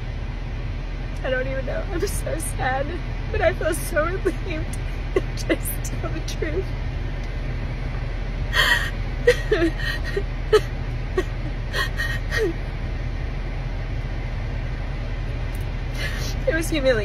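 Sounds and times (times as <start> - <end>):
woman sobbing: 2.6 - 6.6, 8.6 - 12.7, 16.0 - 16.7
woman gasping: 8.5 - 12.6, 16.0 - 16.4.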